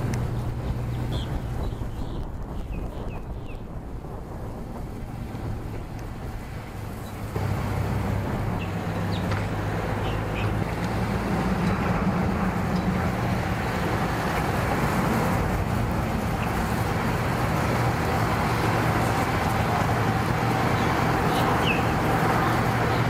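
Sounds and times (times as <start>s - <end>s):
vehicle engine idling: 0.0s - 23.0s.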